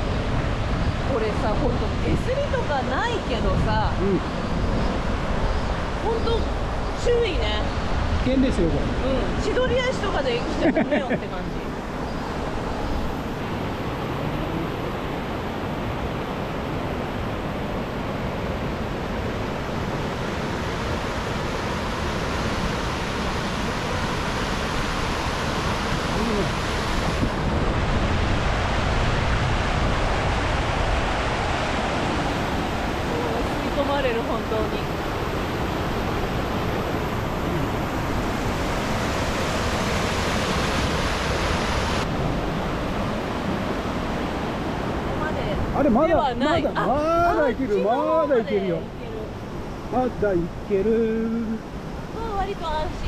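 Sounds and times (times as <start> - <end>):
white water rushing over rock: 8.1 - 49.3.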